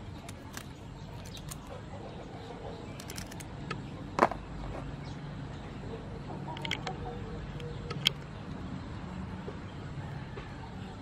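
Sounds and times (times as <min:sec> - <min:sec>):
prawn shells clicking and snapping: 0:00.0 - 0:01.7, 0:03.0 - 0:03.8, 0:06.6 - 0:07.0, 0:07.6 - 0:08.3.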